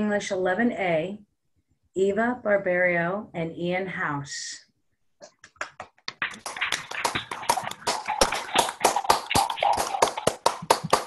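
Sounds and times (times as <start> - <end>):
people clapping: 5.4 - 11.0.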